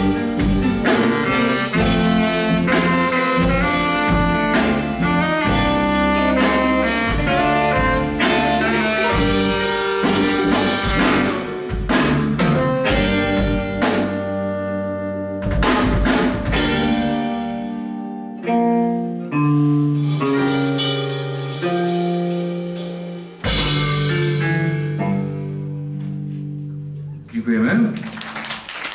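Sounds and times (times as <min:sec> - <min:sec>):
drums accenting the beat: 0:00.0 - 0:17.7, 0:19.8 - 0:24.7
blues band playing: 0:00.0 - 0:28.9.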